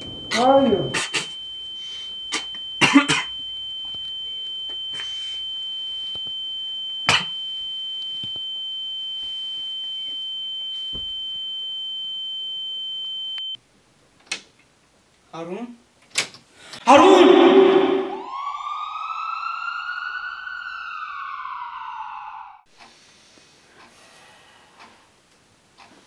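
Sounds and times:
high-pitched electronic tone: 0:00.0 - 0:06.2, 0:16.9 - 0:22.6
person choking coughs: 0:00.9 - 0:01.4, 0:02.3 - 0:03.4, 0:07.1 - 0:07.4.

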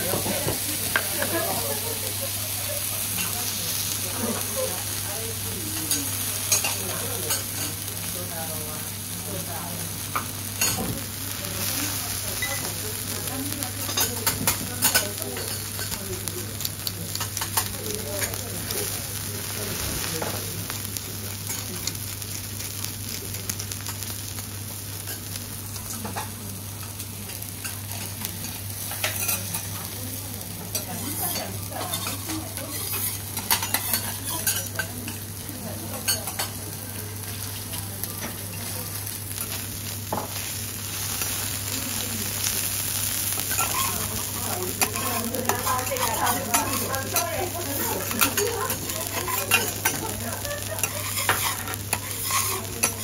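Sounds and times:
meat sizzling on a griddle: 0:00.0 - 0:53.0
metal spatulas scraping a hot plate: 0:43.5 - 0:50.1, 0:50.7 - 0:53.0.

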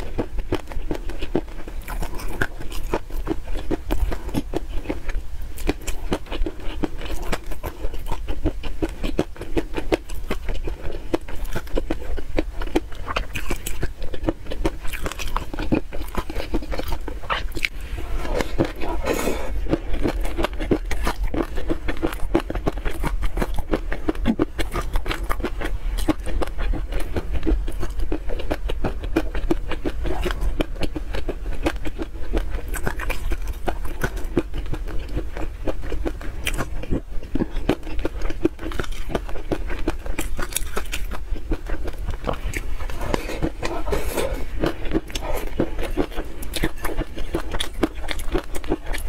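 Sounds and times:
wet chewing and lip smacks: 0:00.0 - 0:49.0
slurping: 0:42.3 - 0:47.0.

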